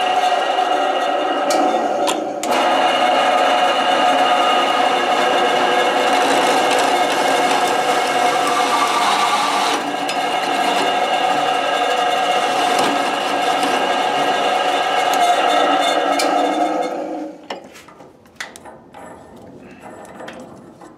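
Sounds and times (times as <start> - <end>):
hole saw grinding through steel: 0.0 - 17.4
hole cutter motor whine: 2.4 - 17.2.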